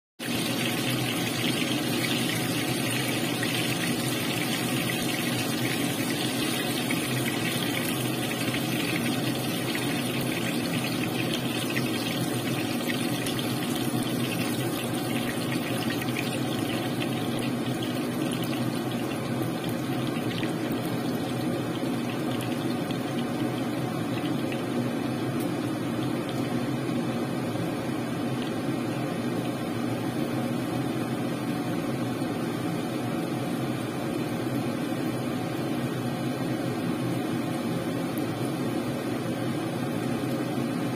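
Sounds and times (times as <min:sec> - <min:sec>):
hot oil sizzling and crackling: 0:00.2 - 0:26.7.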